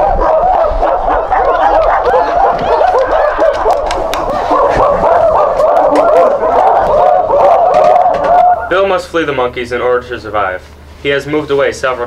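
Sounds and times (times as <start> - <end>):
monkey-like hooting calls: 0.0 - 8.9.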